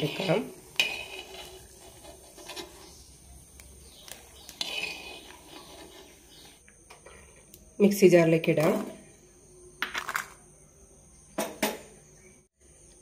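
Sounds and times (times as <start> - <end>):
steel spoon scraping in pot: 0.0 - 3.3, 3.9 - 6.6.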